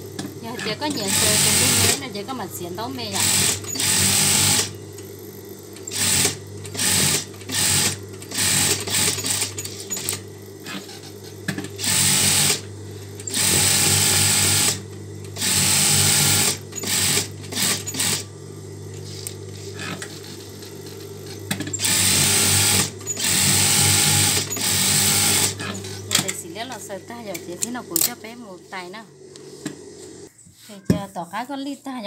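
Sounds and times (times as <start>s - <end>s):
sewing machine stitching: 0.6s - 2.1s, 3.1s - 4.7s, 5.9s - 10.8s, 11.8s - 12.6s, 13.2s - 14.8s, 15.4s - 18.2s, 21.5s - 26.3s.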